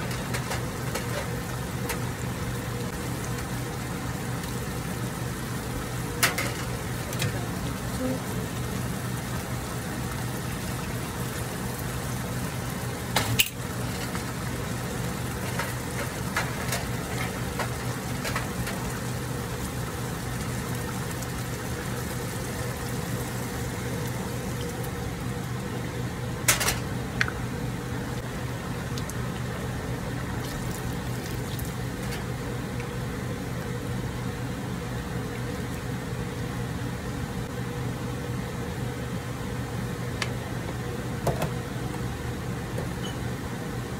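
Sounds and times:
soup bubbling in a pan: 0.1 - 25.9.

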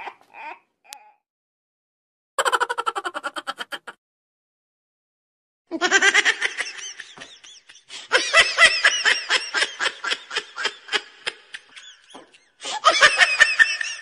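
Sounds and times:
hearty laughing: 2.4 - 4.0, 5.8 - 14.0.

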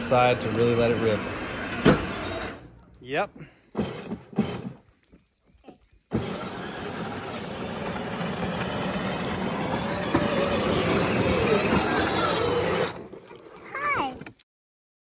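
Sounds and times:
electric motors whirring: 0.0 - 2.8, 3.7 - 4.8, 6.1 - 13.3.

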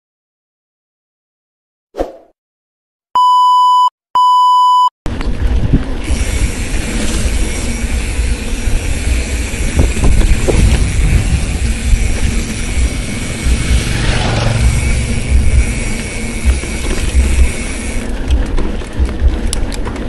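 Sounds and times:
electronic beeps: 3.2 - 4.9
wind noise on microphone: 5.1 - 20.0.

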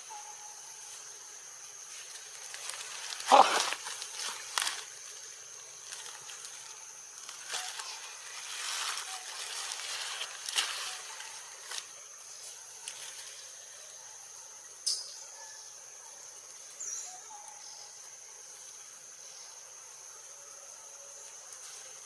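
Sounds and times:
insects whining: 0.0 - 22.0
rustling: 1.9 - 13.5.

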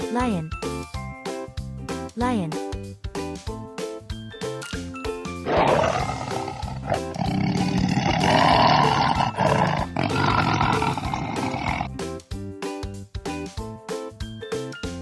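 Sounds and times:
light children's music: 0.0 - 5.4, 11.2 - 15.0
lion roaring: 5.4 - 11.9.

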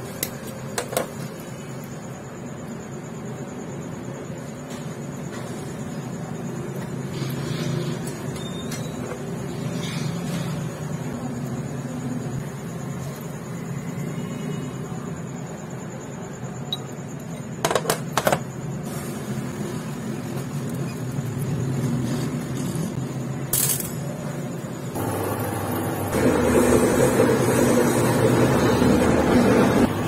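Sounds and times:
metal parts clinking on workbench: 23.5 - 24.1
low machine hum: 24.9 - 30.0.

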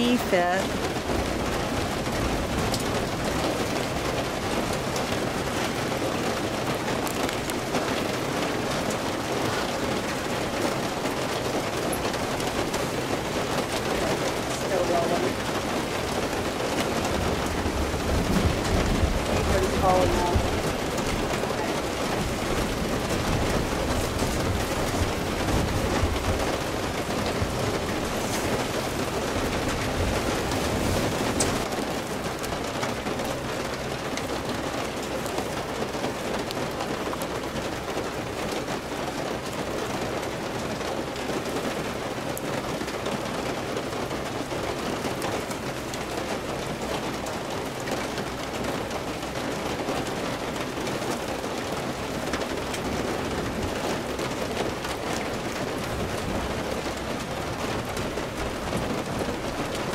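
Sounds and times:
heavy rain falling: 0.0 - 59.9.

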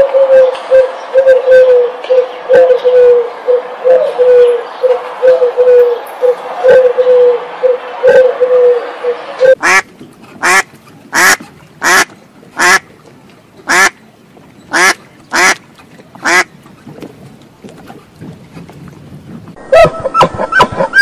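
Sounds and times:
duck quacking: 9.6 - 12.8, 13.7 - 14.0, 14.7 - 15.6, 16.2 - 16.5.

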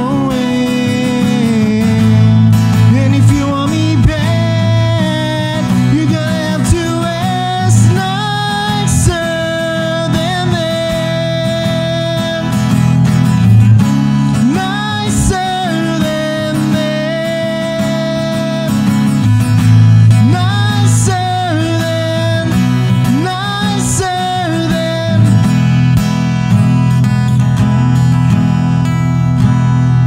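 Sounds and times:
man singing: 0.0 - 13.5, 14.2 - 26.0
strummed acoustic guitar: 0.0 - 30.0.

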